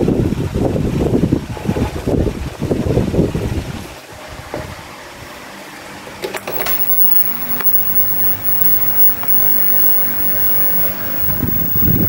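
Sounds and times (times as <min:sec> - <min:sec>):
low mains hum: 0:06.5 - 0:12.0
plug clicks and crackles: 0:06.5 - 0:12.0
television static hiss: 0:06.5 - 0:12.0.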